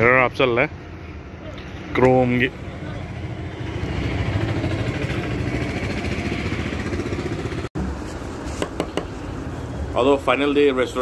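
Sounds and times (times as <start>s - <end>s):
scooter engine idling: 4.1s - 7.7s.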